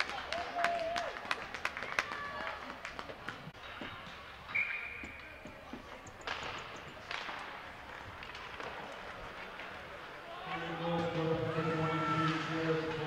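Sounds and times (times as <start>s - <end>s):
hockey sticks and puck clacking: 3.1s - 13.0s
skates scraping ice: 6.3s - 13.0s.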